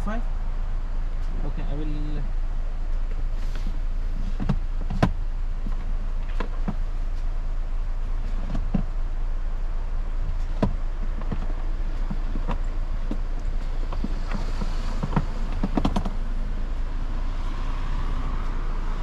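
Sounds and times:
car engine idling: 0.0 - 19.0
light clicks and knocks: 10.3 - 16.2.

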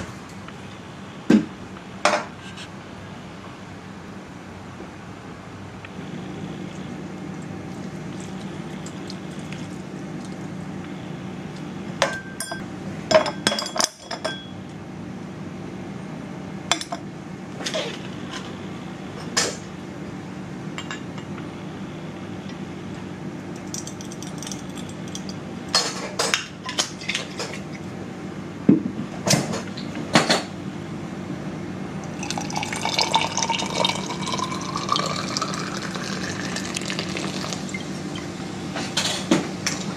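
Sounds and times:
steady low hum: 0.0 - 39.9
metal bar tools clinking on glass: 12.1 - 12.6
soda water pouring and fizzing: 32.0 - 38.0.

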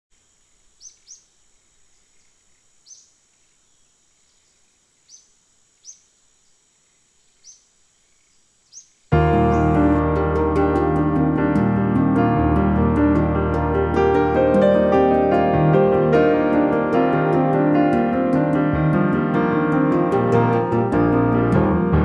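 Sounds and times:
faint bird chirps: 0.5 - 9.7
piano music: 9.1 - 22.0.

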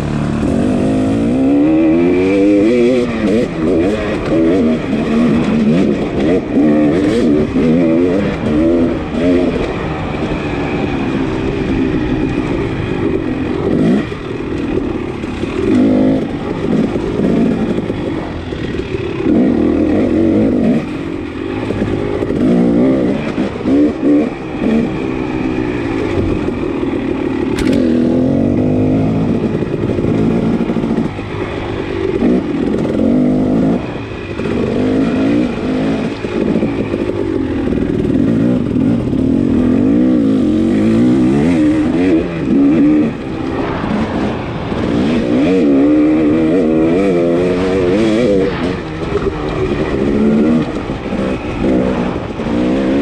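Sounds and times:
dirt bike engine revving: 0.0 - 53.0
sharp click: 27.5 - 27.9.

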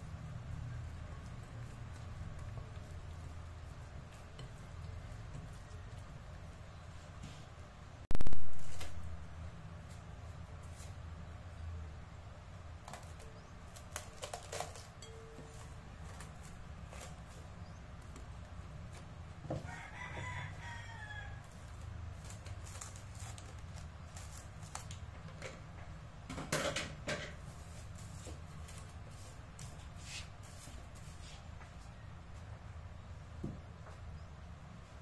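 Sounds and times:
cling film rustling and crinkling: 8.1 - 11.1, 12.8 - 20.5, 21.3 - 25.8
scissors cutting film: 12.9 - 15.0, 21.7 - 25.2.

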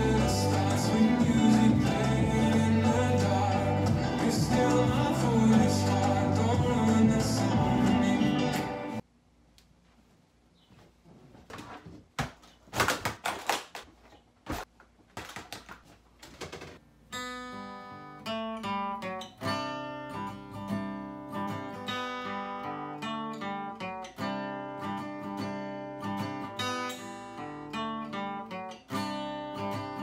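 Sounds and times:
acoustic guitar chords: 0.0 - 9.0
knocks and rustling: 9.9 - 16.8.

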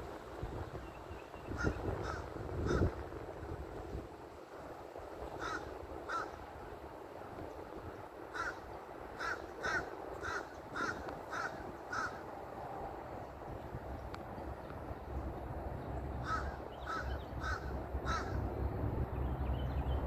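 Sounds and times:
crows cawing: 1.6 - 2.9, 5.4 - 6.4, 8.3 - 12.2, 16.2 - 18.4.

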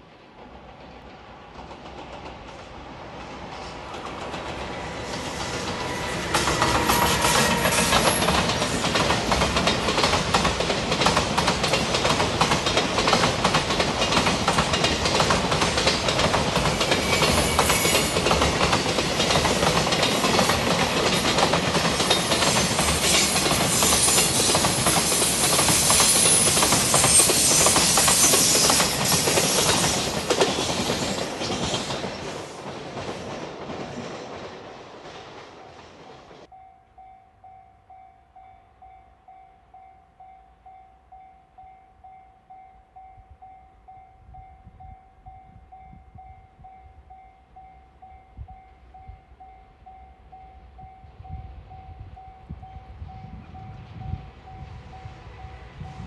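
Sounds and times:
train passing at speed: 0.0 - 56.0
wheels clattering on rail: 0.5 - 36.5.

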